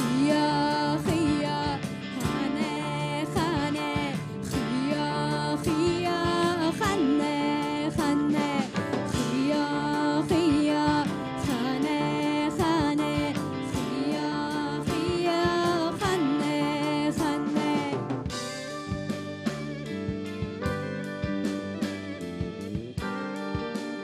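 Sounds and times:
woman singing: 0.0s - 18.2s
bass guitar: 0.0s - 24.0s
drum kit: 0.0s - 24.0s
electric guitar: 0.0s - 24.0s.

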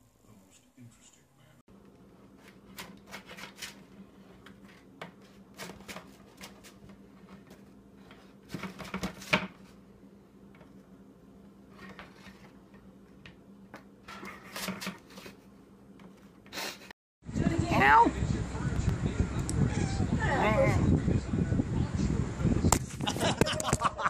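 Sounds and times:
spatula scraping metal baking sheet: 14.1s - 15.4s.

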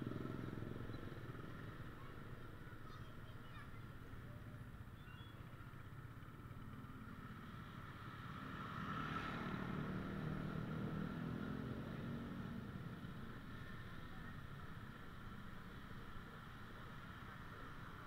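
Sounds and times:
motorcycle engine hum: 0.0s - 18.0s
street traffic: 0.0s - 18.0s.

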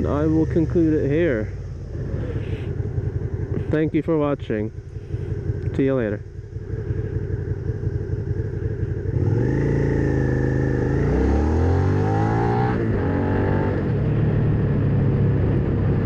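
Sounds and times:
motorcycle engine revving: 0.0s - 16.0s.

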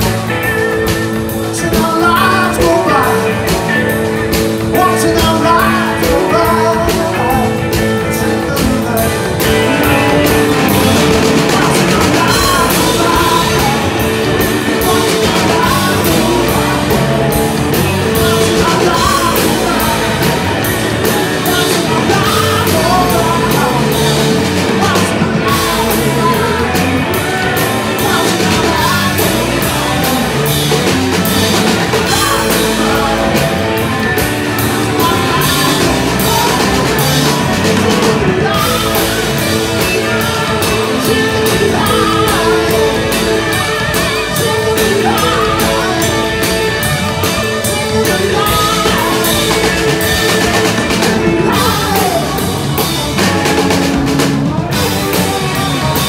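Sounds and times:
rock band playing live: 0.0s - 56.0s
wavering lead guitar: 0.0s - 56.0s.

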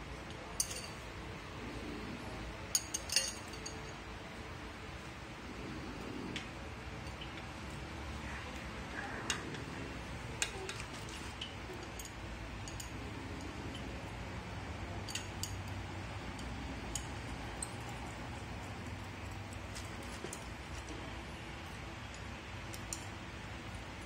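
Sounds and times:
steady background noise: 0.0s - 24.0s
metal basket clicks and clinks: 2.8s - 4.0s.

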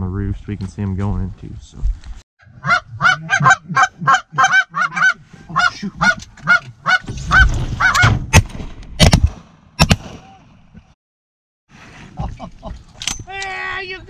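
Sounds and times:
geese honking: 2.4s - 8.0s
shotgun shots: 8.3s - 10.3s.

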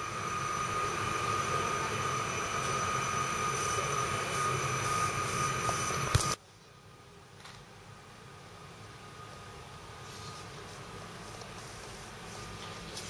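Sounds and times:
high electrical whine: 0.0s - 6.4s.

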